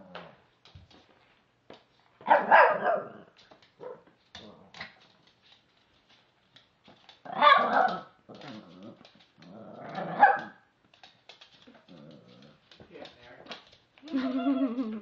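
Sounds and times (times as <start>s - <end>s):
puppy barking: 2.2s - 3.2s, 3.8s - 4.1s, 7.3s - 8.1s, 10.1s - 10.6s.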